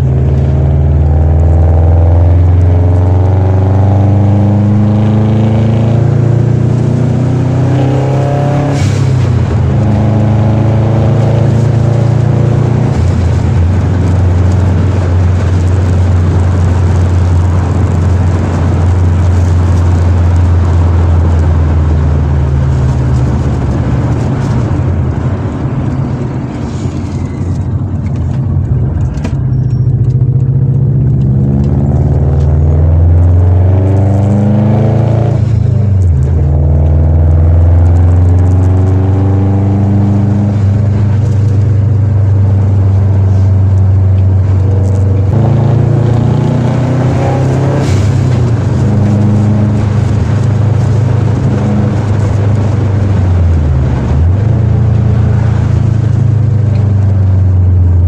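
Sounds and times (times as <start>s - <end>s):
car engine rumbling: 0.0s - 58.0s.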